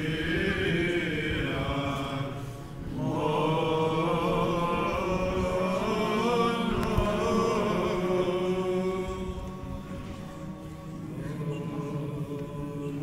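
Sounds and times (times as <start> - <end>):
low vocal drone: 0.0 - 13.0
men chanting: 3.0 - 13.0.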